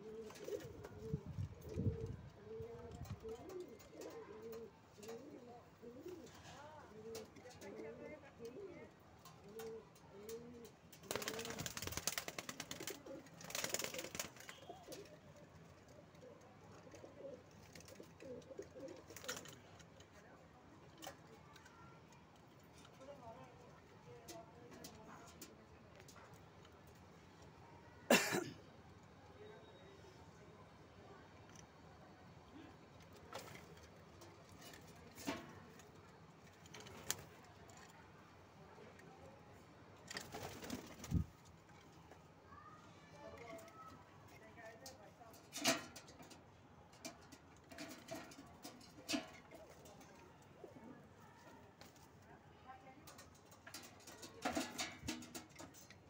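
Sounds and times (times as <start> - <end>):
pigeons cooing: 0.0 - 7.3.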